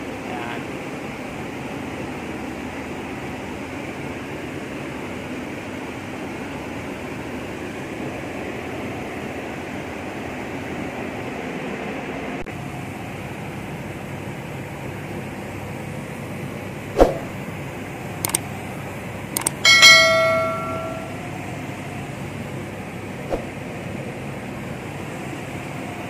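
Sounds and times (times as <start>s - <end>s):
single click: 18.2s - 18.4s, 19.4s - 19.6s.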